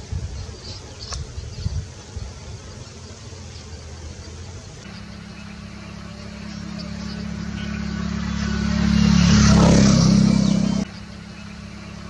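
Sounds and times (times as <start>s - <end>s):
motor engine passing: 2.8s - 12.0s.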